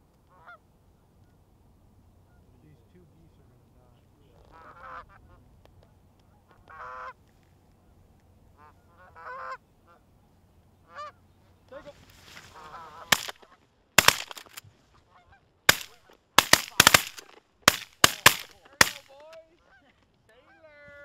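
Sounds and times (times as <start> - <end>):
geese honking: 0.3 - 0.6, 2.2 - 2.6, 4.5 - 5.4, 6.2 - 7.2, 8.6 - 10.1, 10.8 - 20.8
shotgun blasts: 13.1 - 14.6, 15.7 - 19.1.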